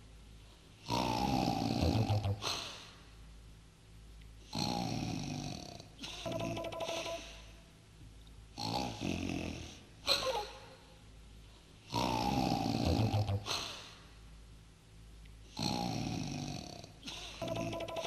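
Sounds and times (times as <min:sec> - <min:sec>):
man snoring: 0:00.9 - 0:02.5, 0:04.5 - 0:05.8, 0:08.6 - 0:09.8, 0:11.9 - 0:13.5, 0:15.6 - 0:16.9
man snorting: 0:00.9 - 0:02.9, 0:11.9 - 0:14.0, 0:15.6 - 0:17.8.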